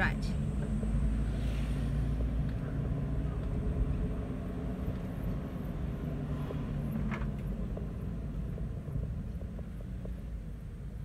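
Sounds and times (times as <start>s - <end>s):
road noise: 0.0s - 11.0s
van engine rumble: 0.0s - 11.0s.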